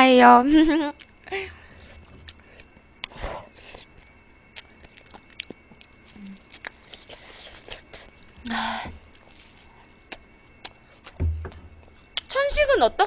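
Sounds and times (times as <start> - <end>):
person chewing and sucking: 1.9 - 12.3.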